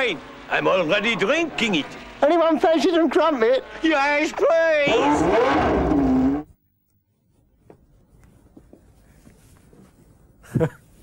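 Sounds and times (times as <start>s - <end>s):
voice cut off: 3.6s - 6.5s.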